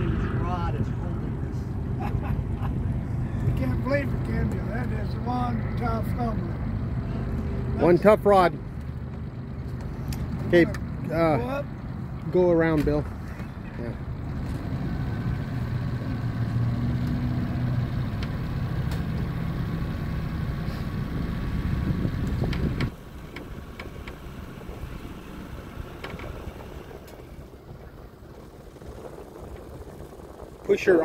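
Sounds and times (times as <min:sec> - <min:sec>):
boat motor running: 0:00.0 - 0:31.0.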